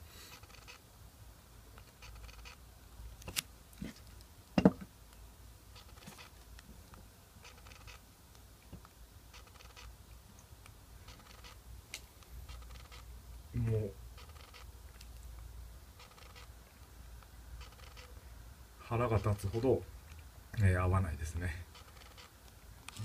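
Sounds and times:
camera handling and button clicks: 3.2 - 4.2.

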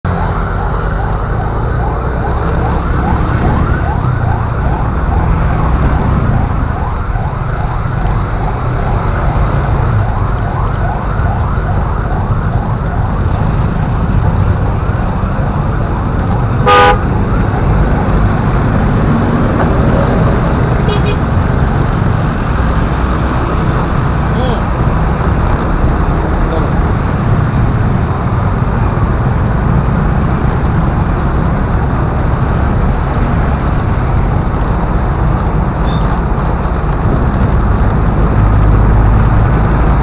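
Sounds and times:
traffic rumble: 0.0 - 40.0
siren yelping: 0.1 - 13.4
vehicle horn blast: 16.6 - 17.1, 20.8 - 21.2.

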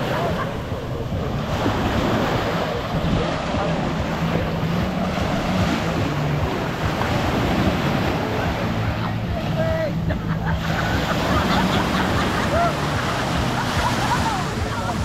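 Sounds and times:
wind on microphone: 0.0 - 9.7
surf washing onto beach: 0.0 - 15.0.

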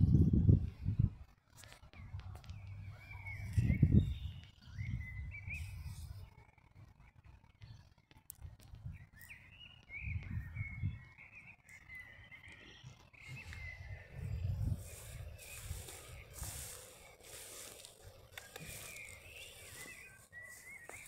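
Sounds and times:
wind rumbling on microphone: 0.0 - 12.1, 12.8 - 21.0
bird calling: 9.2 - 21.0.

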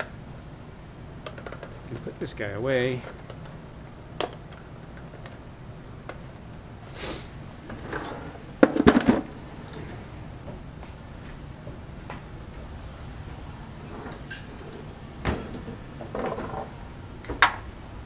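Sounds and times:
drawer sliding: 7.6 - 10.1, 13.8 - 16.8
clatter of sharp knocks: 8.6 - 9.3.

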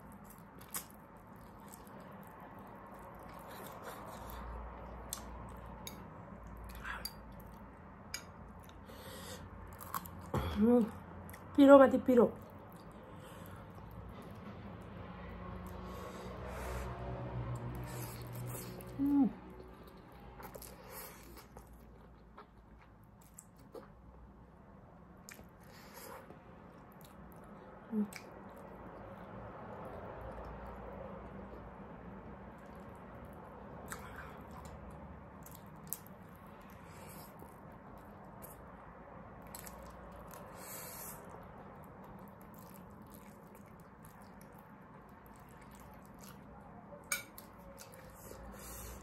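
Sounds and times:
slurping and chewing noodles: 39.4 - 46.6, 47.4 - 49.0.

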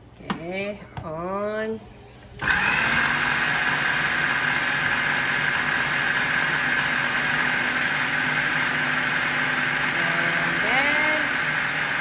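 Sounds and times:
food processor motor whine: 2.4 - 12.0.

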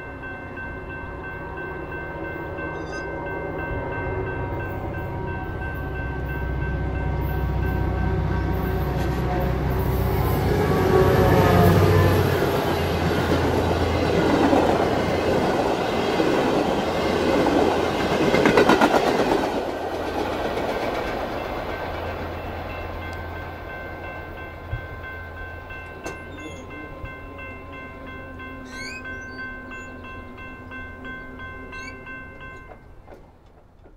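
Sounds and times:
level crossing bell ringing: 0.0 - 7.9, 22.8 - 33.0
diesel locomotives passing: 0.0 - 33.9.

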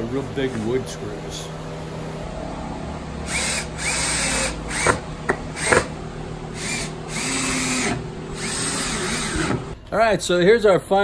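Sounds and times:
cordless drill driving screws into wood: 3.2 - 5.9, 6.5 - 9.8.

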